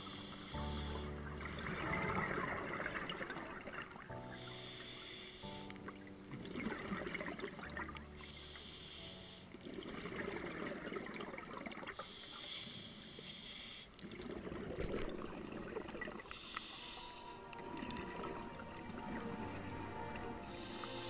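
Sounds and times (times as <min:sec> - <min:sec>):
regulator inhale hissing: 0:00.0 - 0:01.1, 0:04.4 - 0:05.8, 0:08.2 - 0:09.6, 0:12.0 - 0:14.0, 0:16.3 - 0:17.6, 0:20.4 - 0:21.0
exhaled bubbles gurgling: 0:00.0 - 0:04.4, 0:05.8 - 0:08.3, 0:09.6 - 0:12.0, 0:14.0 - 0:21.0.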